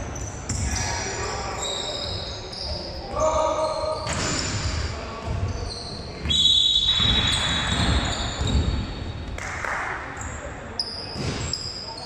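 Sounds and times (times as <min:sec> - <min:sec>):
sneakers squeaking: 0:00.0 - 0:09.4, 0:10.2 - 0:12.0
basketball bouncing on court: 0:06.9 - 0:09.0.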